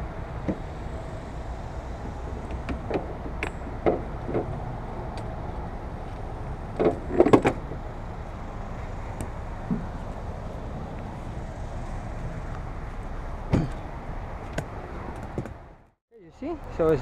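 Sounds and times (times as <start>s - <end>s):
steady low rumble: 0.0s - 17.0s
knocks and clicks of tools: 2.3s - 5.3s, 6.7s - 7.6s.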